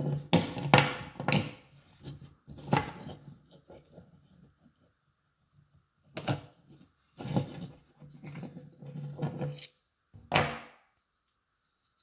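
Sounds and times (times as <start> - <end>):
scraping and rubbing: 6.7 - 9.7.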